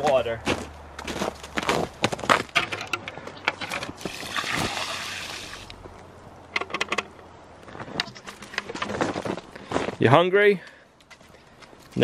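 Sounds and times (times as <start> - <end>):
water pouring from bucket: 4.0 - 5.7.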